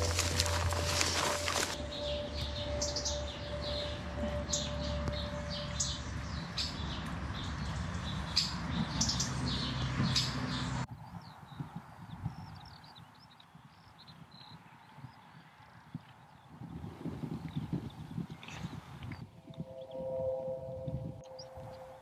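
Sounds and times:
birds chirping and singing: 0.0 - 15.3, 17.5 - 22.0
faint held tone: 19.4 - 22.0.

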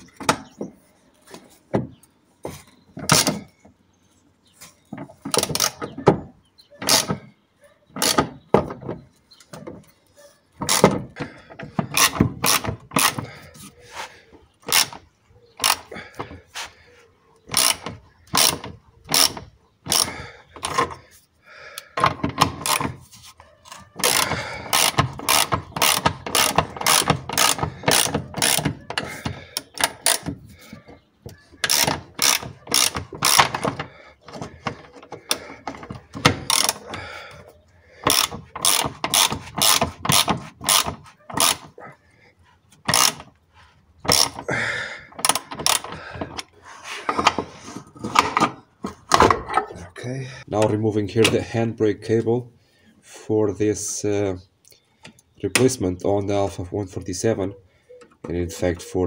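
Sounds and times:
ratchet wrench clicking: 17.6 - 20.8, 24.0 - 28.8, 29.6 - 30.3, 31.6 - 33.6, 36.4 - 36.8, 38.1 - 41.6, 42.9 - 43.2.

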